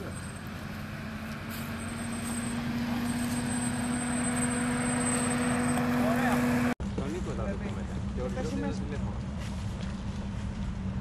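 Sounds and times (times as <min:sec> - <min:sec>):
car engine running under load: 0:00.0 - 0:08.1.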